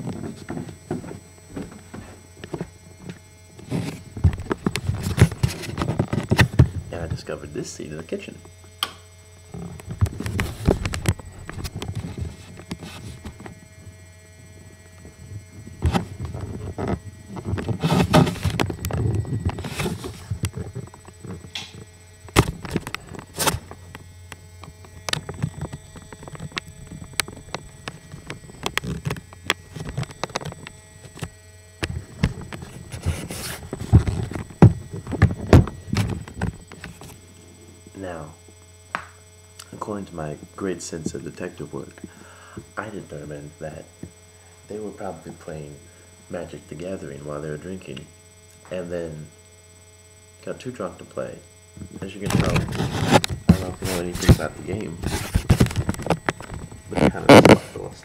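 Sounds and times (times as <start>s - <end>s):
steady electrical hum: 0.0s - 58.0s
camera handling noise: 52.3s - 57.6s.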